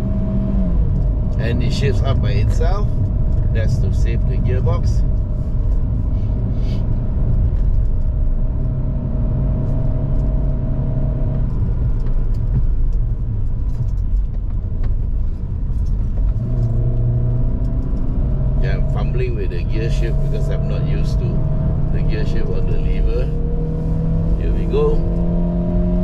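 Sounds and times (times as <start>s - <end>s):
car engine drone: 0.0s - 26.0s
road rumble: 0.0s - 26.0s.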